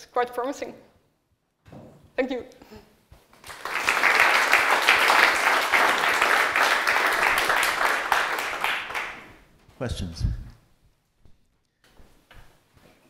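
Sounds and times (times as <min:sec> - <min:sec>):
audience applauding: 0:03.4 - 0:09.4.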